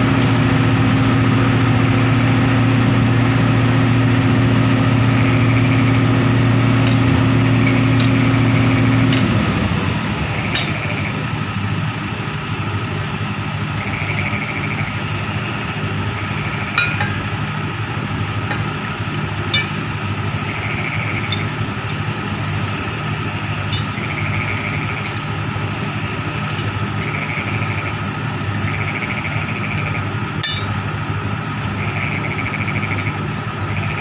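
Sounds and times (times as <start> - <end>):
diesel engine idling: 0.0 - 34.0
metal clinks: 10.5 - 10.9, 16.8 - 17.3, 19.5 - 19.9, 23.7 - 24.0, 30.4 - 30.8.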